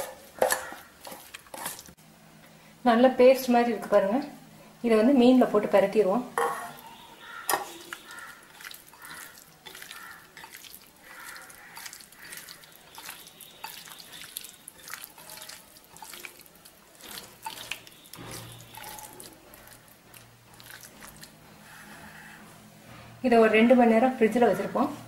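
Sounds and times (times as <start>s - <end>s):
hand squelching paste into fish: 7.7s - 19.9s.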